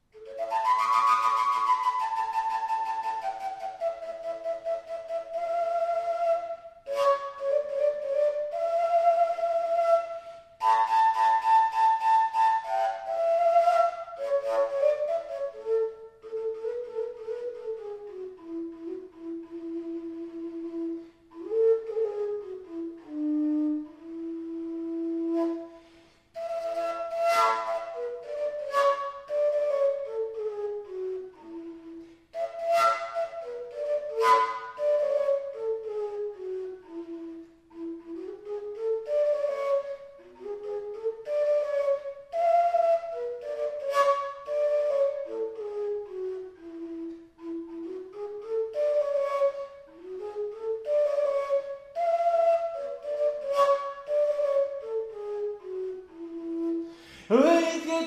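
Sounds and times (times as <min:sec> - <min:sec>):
overtone flute melody: 0:00.0 - 0:58.0
breathy flute blast: 0:10.0 - 0:10.9, 0:25.4 - 0:28.0, 0:31.6 - 0:33.6, 0:56.5 - 0:58.0.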